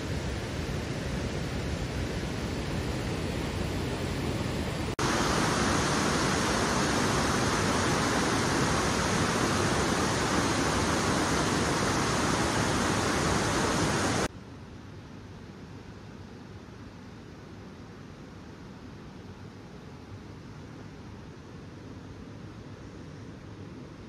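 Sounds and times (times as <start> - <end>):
running water rushing: 5.0 - 14.3.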